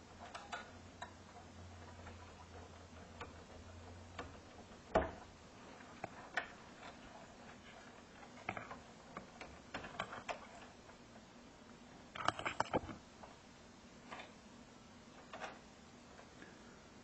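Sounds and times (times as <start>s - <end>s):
wires clicking on a circuit board: 0.0s - 11.2s, 12.1s - 13.4s.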